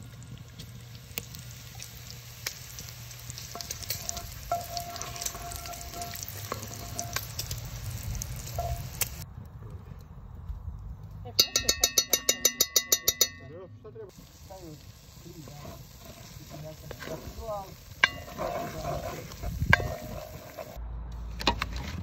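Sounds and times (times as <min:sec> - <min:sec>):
bacon sizzling and popping: 0:00.0 - 0:09.2, 0:14.1 - 0:20.8
wooden spoon stirring in pot: 0:01.7 - 0:09.2, 0:14.2 - 0:20.8.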